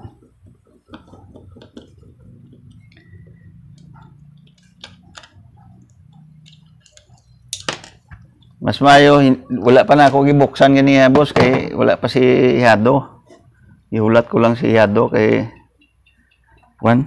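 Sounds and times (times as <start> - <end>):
connectors clicking: 0.6 - 8.6.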